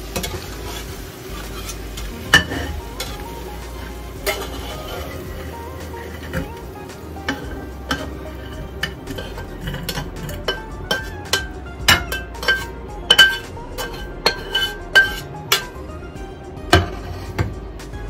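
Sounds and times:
metal spatula clinking on plate: 7.3s - 15.7s.

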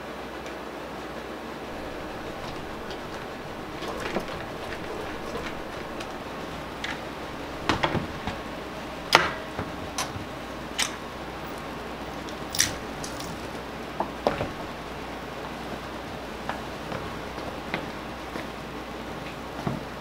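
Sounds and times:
steady low hiss: 1.2s - 20.0s
scooter wheels clicking and squeaking: 1.7s - 9.3s.

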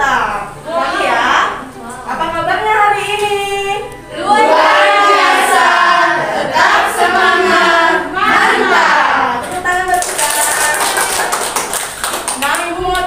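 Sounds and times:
group singing: 0.6s - 1.6s, 4.0s - 9.8s.

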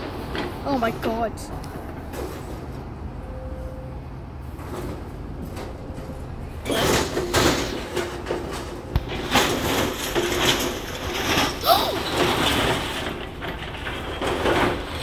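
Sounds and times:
excavator rumble: 0.0s - 15.0s
metal scraping and grinding: 6.6s - 15.0s
debris crunching: 6.7s - 15.0s.

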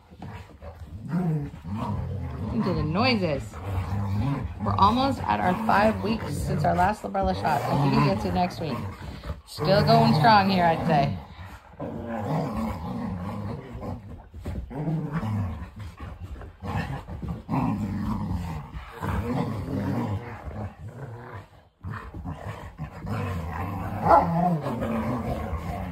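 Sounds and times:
dogs play-growling: 0.0s - 25.9s.

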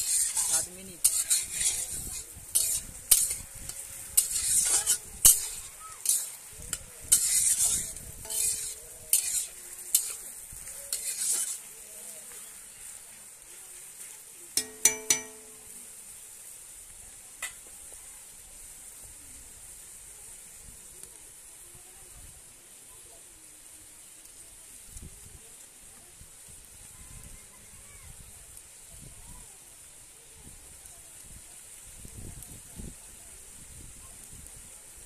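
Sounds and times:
metal spatula scraping and stirring: 0.0s - 13.1s, 13.8s - 15.8s
onions sizzling in oil: 0.0s - 35.0s.

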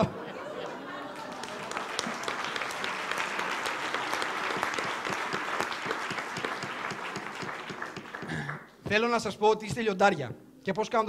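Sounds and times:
audience applauding: 0.8s - 8.7s.

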